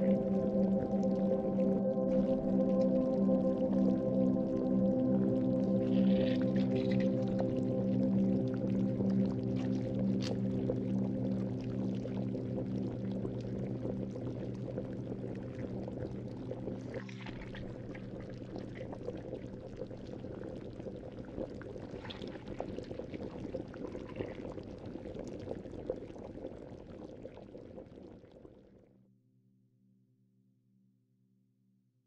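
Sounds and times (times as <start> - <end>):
steady low hum: 0.0 - 19.9.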